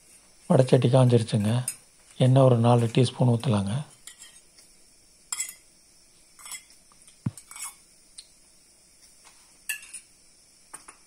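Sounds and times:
teaspoon clinking against metal pan: 0:05.3 - 0:05.6.

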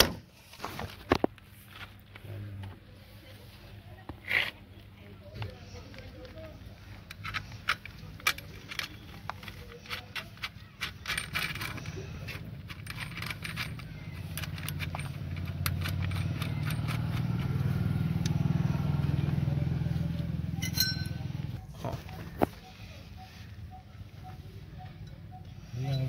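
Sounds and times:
low engine rumble: 0:05.0 - 0:26.0
metal washers clinking: 0:06.9 - 0:17.9, 0:20.6 - 0:21.6.

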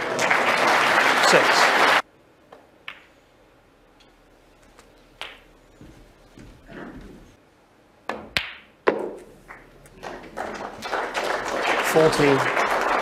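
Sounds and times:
snooker balls clicking: 0:02.5 - 0:03.2, 0:04.0 - 0:06.0.

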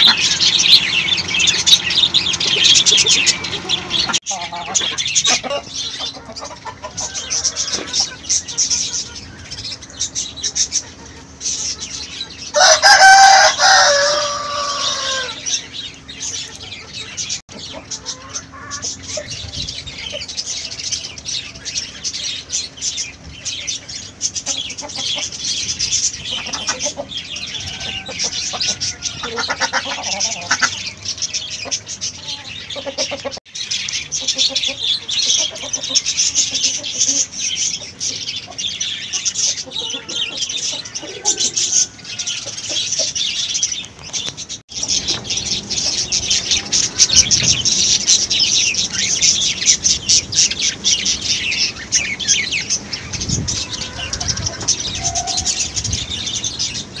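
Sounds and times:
chicken clucking: 0:00.0 - 0:09.4, 0:10.6 - 0:19.3, 0:24.3 - 0:33.4, 0:34.0 - 0:49.7
rooster crowing: 0:07.0 - 0:08.2, 0:12.5 - 0:15.6, 0:27.4 - 0:29.6, 0:53.6 - 0:55.8.

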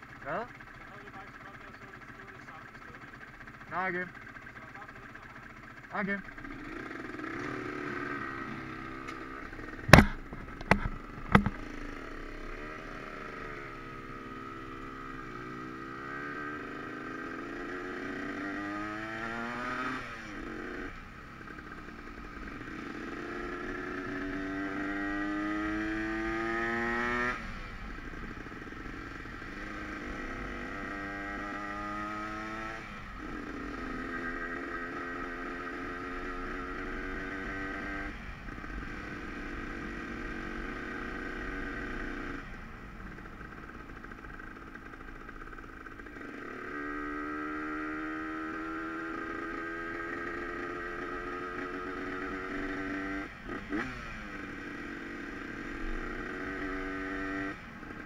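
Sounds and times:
motorcycle engine accelerating: 0:00.0 - 0:58.0
sharp knocks: 0:09.8 - 0:11.7.

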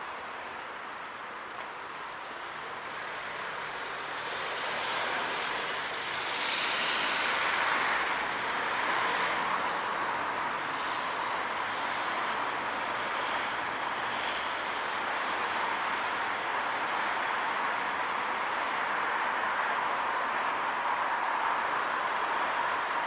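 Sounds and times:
cars passing: 0:00.0 - 0:23.0.

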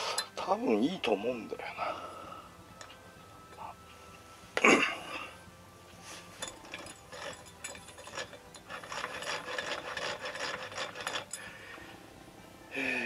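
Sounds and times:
mechanical clicking and rubbing: 0:06.2 - 0:11.5.

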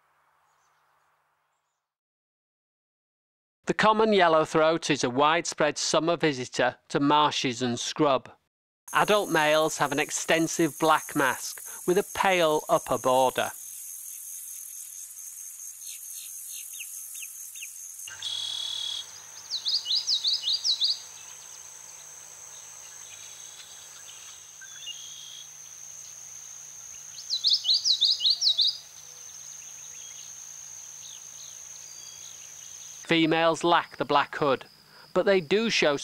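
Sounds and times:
bird singing rolling song: 0:00.4 - 0:01.9, 0:09.0 - 0:34.7
insects droning: 0:08.9 - 0:36.0.

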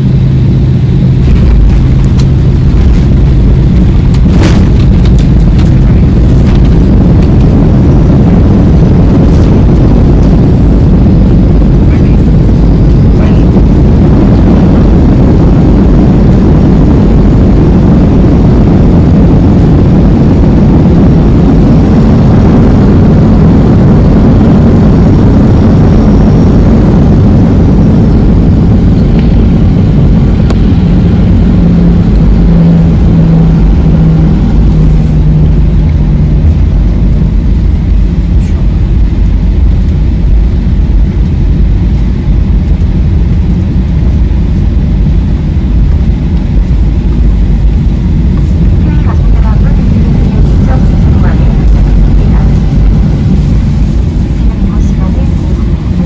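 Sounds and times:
airliner cabin rumble: 0:00.0 - 0:56.0
jet engine noise: 0:00.0 - 0:56.0
low hum: 0:00.0 - 0:56.0.

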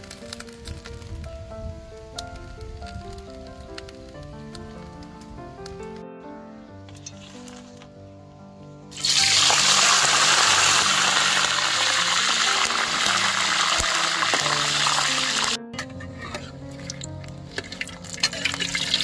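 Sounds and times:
leaves sizzling in hot oil: 0:00.0 - 0:04.4, 0:06.9 - 0:07.8, 0:08.9 - 0:15.6, 0:16.2 - 0:19.0
background music: 0:00.0 - 0:19.0.

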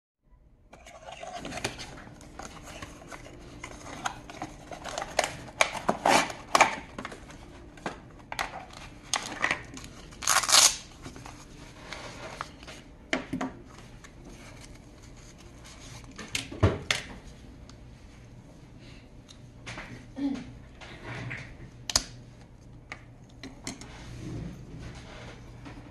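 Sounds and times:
packaging rustling: 0:08.6 - 0:12.7.

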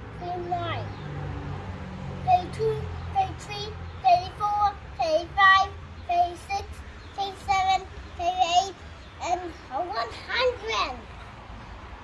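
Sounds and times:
young child singing: 0:00.1 - 0:01.0, 0:02.2 - 0:11.1.

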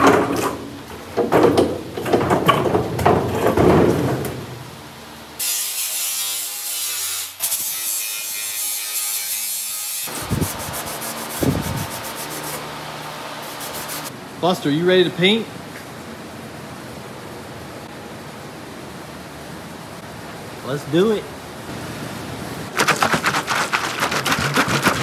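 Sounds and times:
scuff pad scrubbing metal: 0:10.0 - 0:12.7, 0:13.4 - 0:14.1.

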